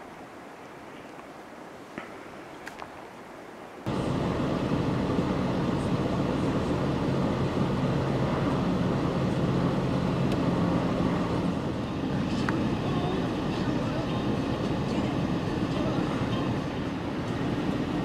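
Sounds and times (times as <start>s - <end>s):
road rumble: 3.8s - 18.0s
vehicle engine hum: 3.9s - 18.0s.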